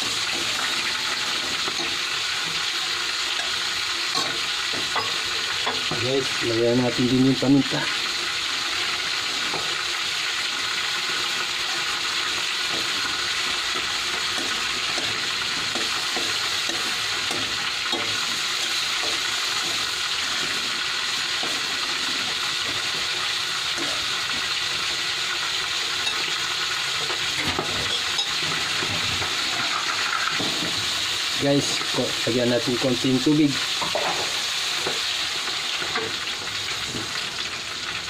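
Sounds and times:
food sizzling in a frying pan: 0.0s - 38.0s
spatula scraping and tapping pan: 12.6s - 24.5s.

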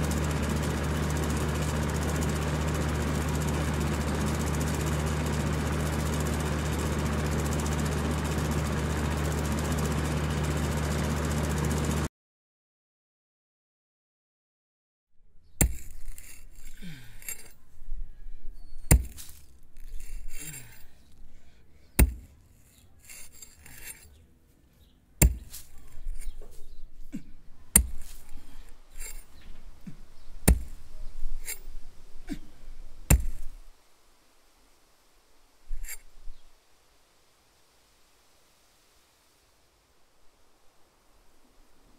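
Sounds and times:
soil and grit rattling: 15.4s - 33.7s, 35.7s - 36.3s
pickaxe striking hard ground: 15.6s - 17.6s, 18.8s - 20.9s, 22.0s - 24.1s, 25.2s - 26.6s, 27.2s - 29.3s, 29.9s - 30.8s, 33.1s - 33.6s.

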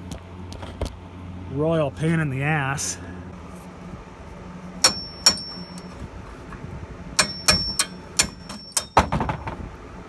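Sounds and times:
metal-on-metal clicks and taps: 7.2s - 9.1s.

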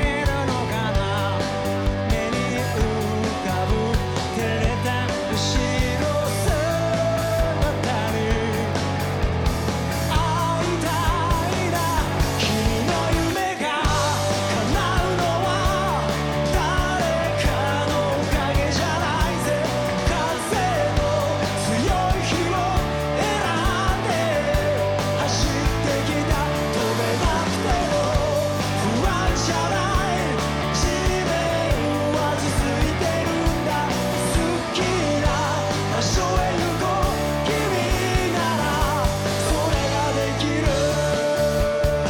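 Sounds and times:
live rock band playing: 0.0s - 42.0s
male singer: 0.0s - 42.0s.

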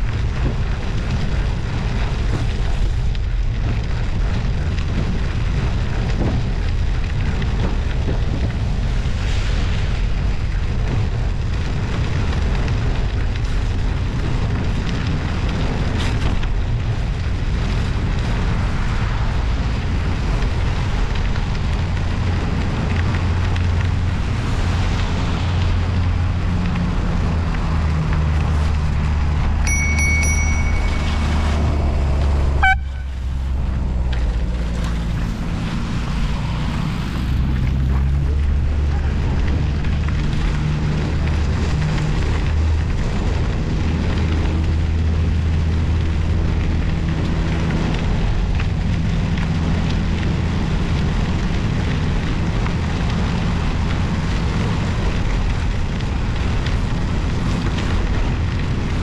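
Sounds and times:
motor vehicle low hum: 0.0s - 59.0s
studded tyres on snowy road: 0.0s - 59.0s
wind rumble on microphone: 0.0s - 59.0s
high electronic beep: 29.7s - 31.4s.

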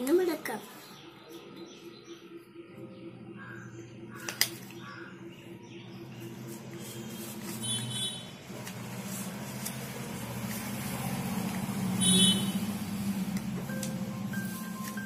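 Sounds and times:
vehicle engine passing by: 6.0s - 15.0s.

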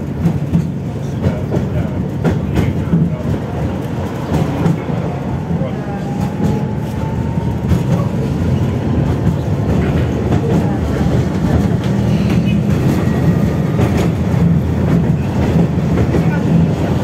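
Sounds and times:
tram wheels rumbling on rails: 0.0s - 17.0s.

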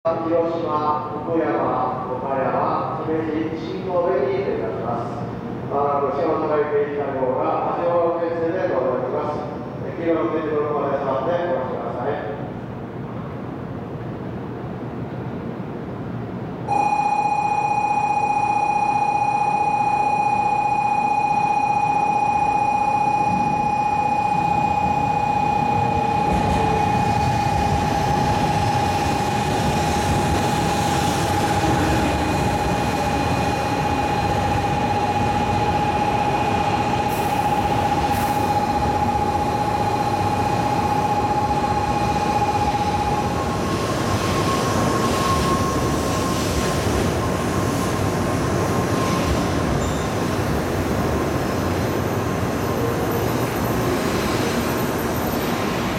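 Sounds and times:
faint high whine: 16.7s - 50.6s
high warning tone: 16.7s - 55.9s
train wheels rumbling on rail: 25.9s - 55.9s.

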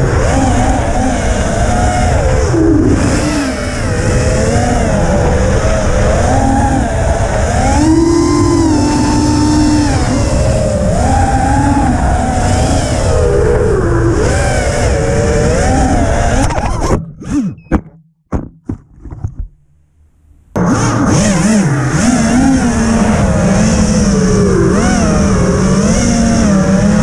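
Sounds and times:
drone motors whining: 0.0s - 17.9s, 20.6s - 27.0s.

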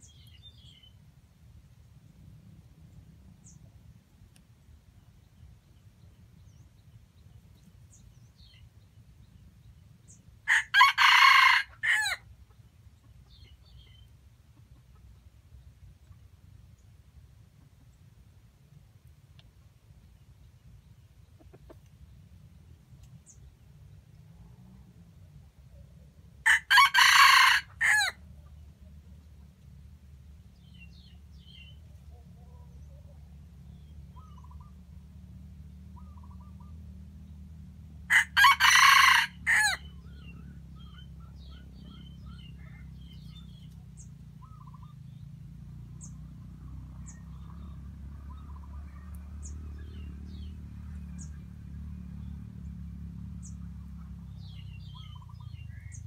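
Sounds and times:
small birds chirping faintly: 0.0s - 10.5s, 12.1s - 26.4s
rooster crowing: 10.5s - 12.2s, 26.4s - 28.2s, 38.1s - 39.9s.

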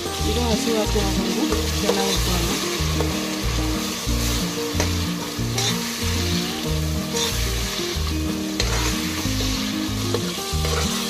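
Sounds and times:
background music with beat: 0.0s - 11.0s
paste sizzling in hot oil: 0.0s - 11.0s
metal spoon scraping: 8.6s - 9.5s, 10.1s - 11.0s.

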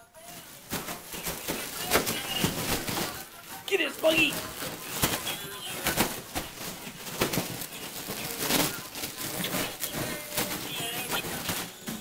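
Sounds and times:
foil balloon crinkling: 0.0s - 12.0s.

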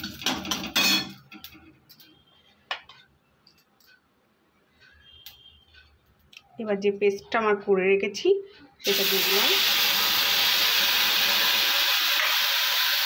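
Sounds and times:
spices frying in oil: 8.8s - 13.0s.

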